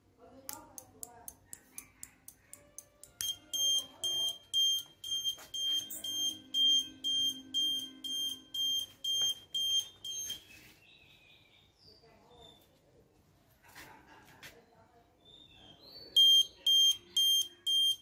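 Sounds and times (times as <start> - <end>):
buzzer alarm beeping: 3.2 - 10.5, 16.2 - 18.0.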